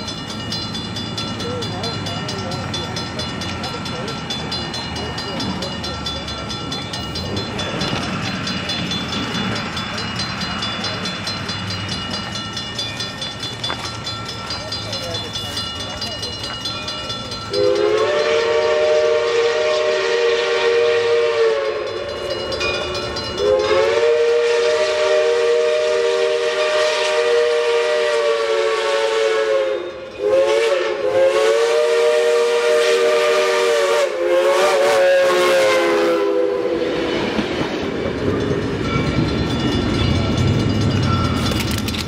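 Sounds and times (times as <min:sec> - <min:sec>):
steam locomotive rumbling: 0:00.0 - 0:42.0
steam whistle chord blasts: 0:17.5 - 0:22.0, 0:23.4 - 0:37.1.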